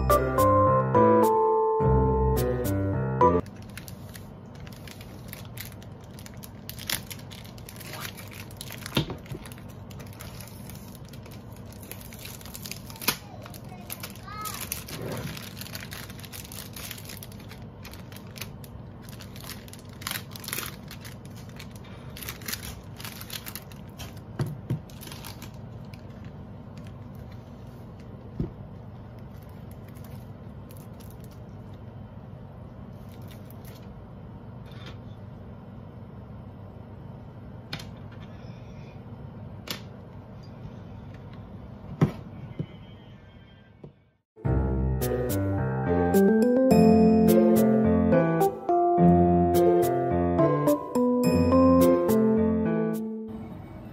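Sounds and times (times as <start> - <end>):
plastic film crinkling: 3.4 - 31.8, 32.9 - 33.9.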